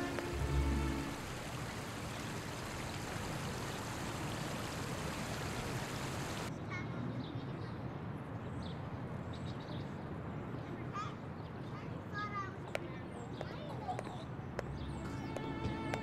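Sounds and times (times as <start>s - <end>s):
music low held note: 0.0s - 1.6s, 14.7s - 16.0s.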